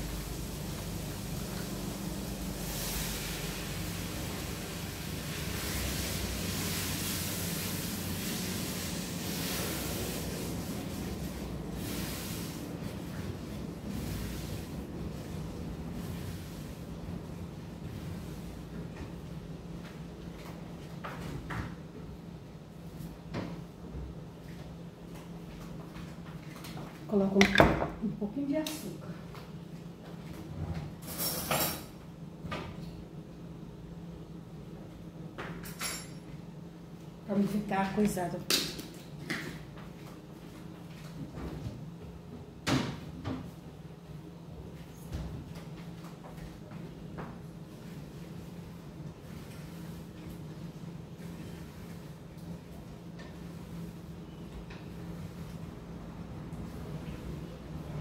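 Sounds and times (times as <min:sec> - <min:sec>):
food hissing in a pan: 0:00.0 - 0:12.7
kitchen knocks and clunks: 0:27.4 - 0:28.0.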